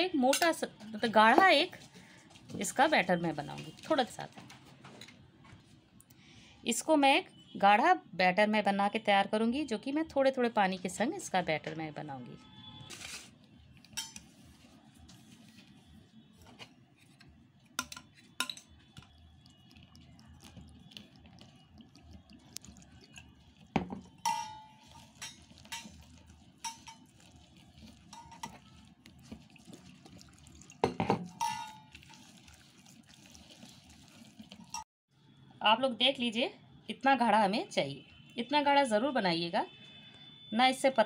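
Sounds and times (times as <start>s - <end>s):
fingers scraping a metal bowl: 22.5s - 30.0s
metallic clinks on a bowl: 24.2s - 25.9s.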